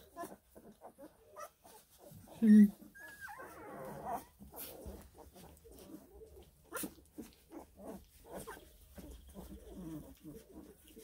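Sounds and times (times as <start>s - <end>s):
puppies whimpering: 0.0s - 11.0s.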